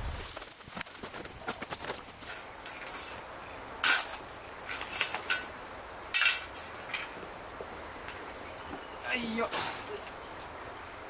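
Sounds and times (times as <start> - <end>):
shovel scraping dirt: 0.0 - 7.2
faint outdoor background: 0.0 - 11.0.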